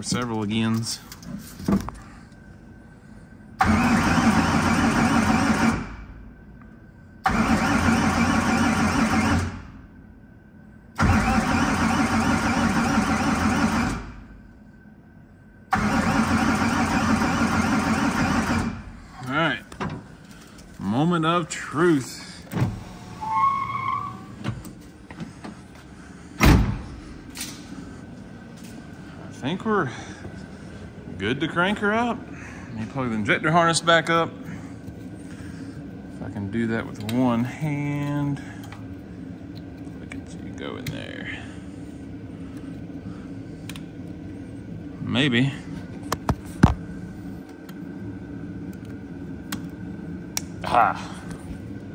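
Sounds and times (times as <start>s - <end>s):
car starter cranking engine: 3.6s - 5.9s, 7.2s - 9.6s, 11.0s - 14.2s, 15.7s - 18.9s.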